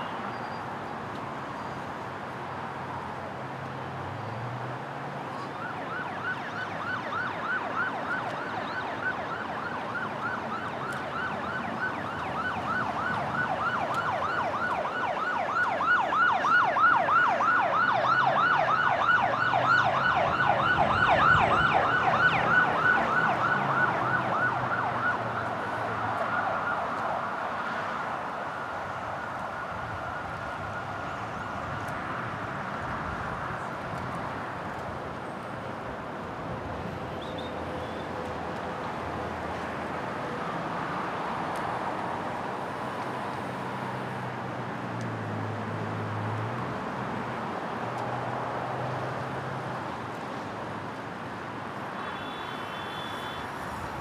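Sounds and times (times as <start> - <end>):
low traffic rumble: 0.0 - 54.0
emergency siren yelping: 5.4 - 32.0.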